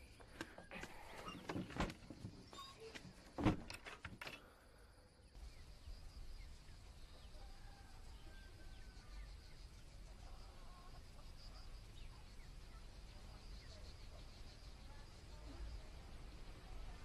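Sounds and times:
faint chirps: 0.0 - 3.0, 4.3 - 17.0
wooden door shutting: 1.2 - 4.2.

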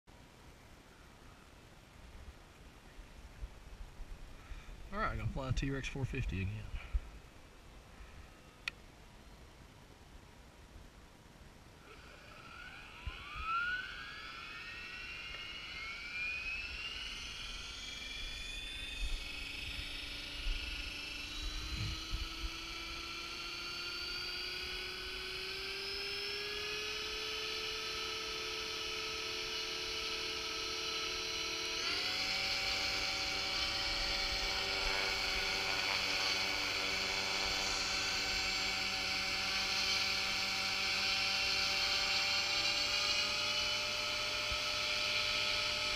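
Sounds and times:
rc helicopter rotor whine: 11.8 - 45.9.

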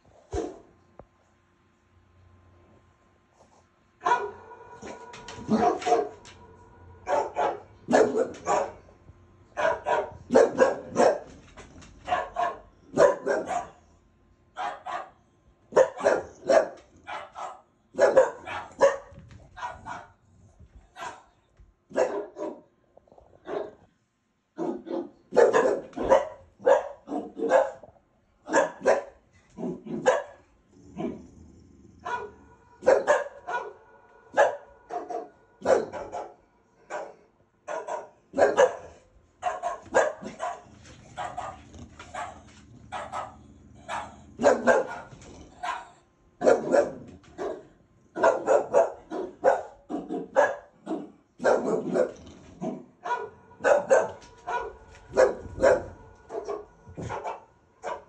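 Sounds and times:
low steady hum: 0.0 - 13.0
dogs barking: 0.3 - 0.7, 4.0 - 8.9, 9.5 - 13.9, 14.6 - 20.2, 20.9 - 22.7, 24.6 - 31.2, 32.0 - 58.0.

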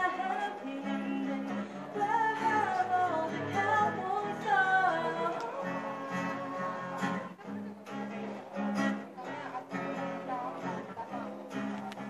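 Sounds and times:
woman singing: 0.0 - 7.4
acoustic guitar strumming: 0.0 - 12.0.

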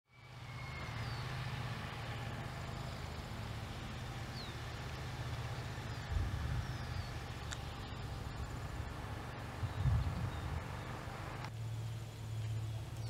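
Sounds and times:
faint bird chirps: 0.1 - 1.3
wind rumbling on microphone: 5.9 - 11.5.

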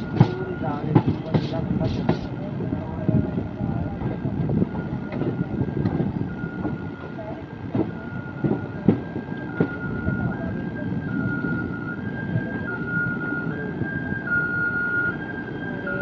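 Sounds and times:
slowly moving train rumble: 0.0 - 16.0
two-tone siren: 4.6 - 7.2, 7.8 - 16.0.

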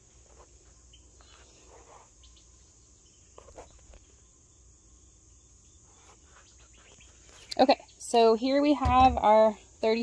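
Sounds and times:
insects humming: 0.0 - 10.0
handling rustle and knock: 8.8 - 9.4.

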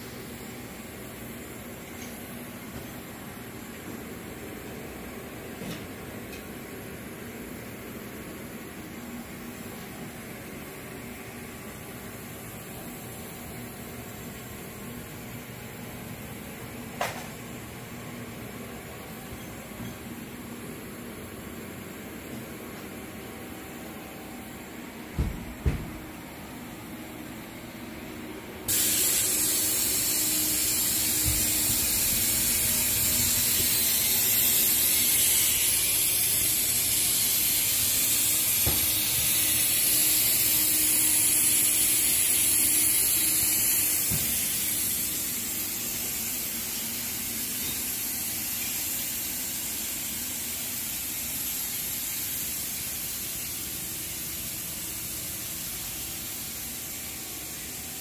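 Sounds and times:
high-pitched hiss: 28.7 - 58.0.

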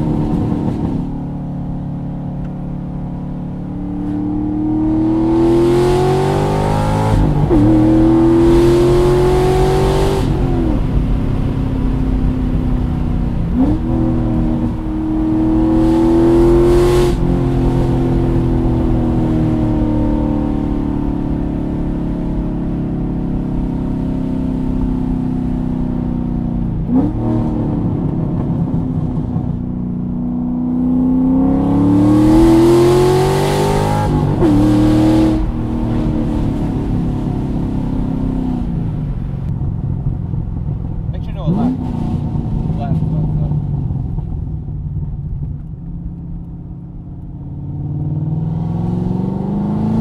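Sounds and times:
car exhaust accelerating: 0.0 - 50.0.

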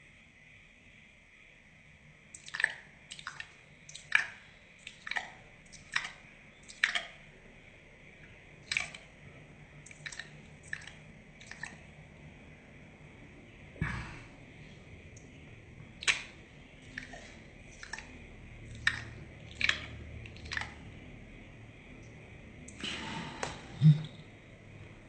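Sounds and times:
sharp wet clicks: 2.3 - 7.3, 8.6 - 9.2, 9.8 - 12.0, 16.0 - 21.0.

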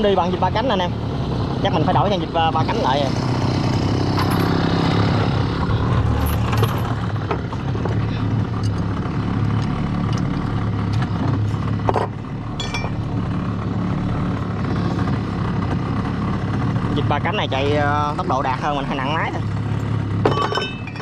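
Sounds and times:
small engine running steadily: 0.0 - 21.0
metallic clinks and knocks: 4.2 - 4.6, 6.2 - 7.0, 11.9 - 13.0, 20.2 - 21.0.

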